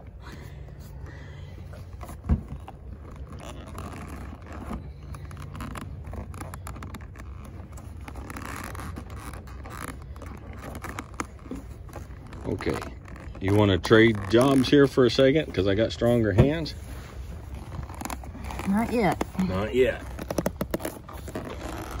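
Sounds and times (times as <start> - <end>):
leather strap rubbing on fleece: 0.7 - 22.0
dull thump: 2.2 - 2.6.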